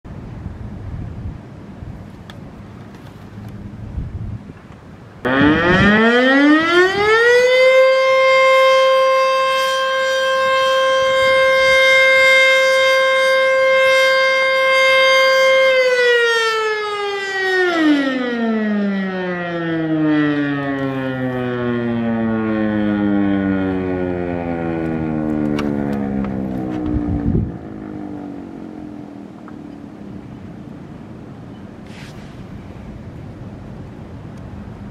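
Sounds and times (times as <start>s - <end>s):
wind rumbling on microphone: 0.0s - 7.3s, 20.8s - 34.9s
warning siren wailing: 5.2s - 30.7s.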